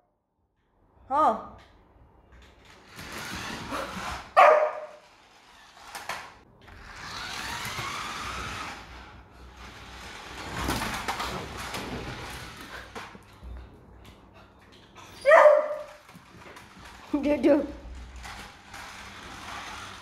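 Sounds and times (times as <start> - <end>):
puppy barking: 4.4 - 5.0, 15.2 - 16.0.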